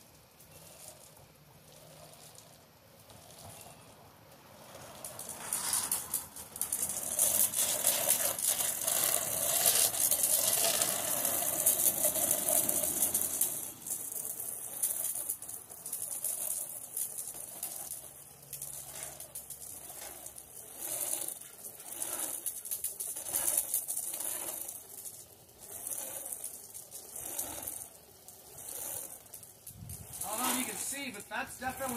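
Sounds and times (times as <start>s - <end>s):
water spray hissing on siding: 10.0s - 20.4s, 21.1s - 31.9s.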